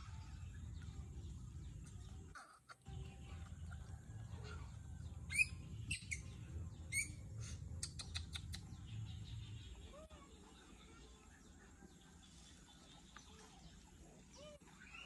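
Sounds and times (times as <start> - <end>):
baby monkey squeaking: 5.3 - 6.2, 6.9 - 7.1
baby monkey chirping: 5.3 - 7.2.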